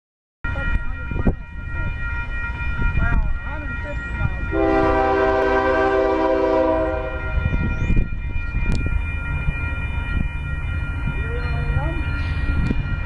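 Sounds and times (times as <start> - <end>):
low rumble of train: 0.4 - 13.0
locomotive air horn blast: 4.6 - 7.3.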